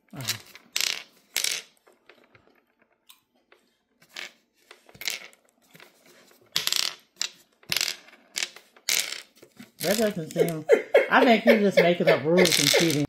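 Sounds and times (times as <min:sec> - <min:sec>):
glass stones clacking on wood: 0:00.2 - 0:03.1, 0:04.0 - 0:05.5, 0:06.6 - 0:10.6, 0:12.4 - 0:13.0.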